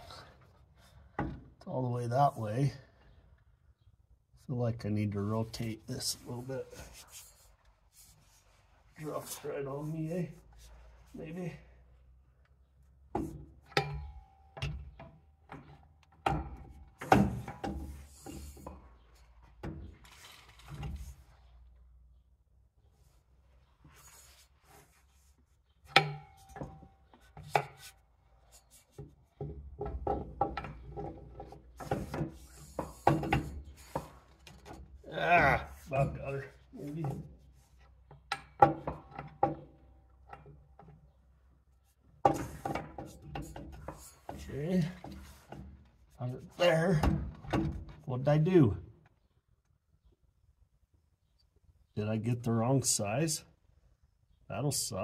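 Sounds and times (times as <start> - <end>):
metal clanks and knocks: 29.4 - 34.9.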